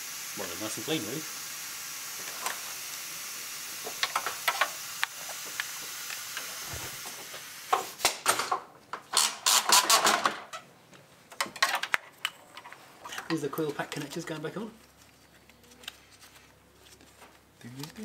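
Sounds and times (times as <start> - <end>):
steady hiss: 0.0 - 8.3
engine parts and tools clattering: 11.4 - 13.4.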